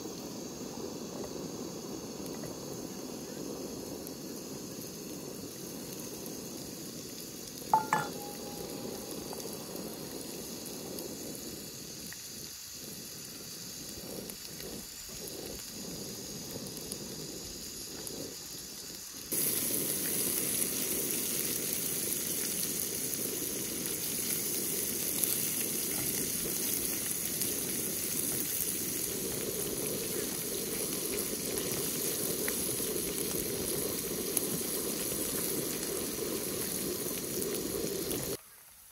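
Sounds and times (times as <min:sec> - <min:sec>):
meat sizzling in frying pan: 0:00.0 - 0:38.4
sharp metallic clink: 0:07.8 - 0:09.5.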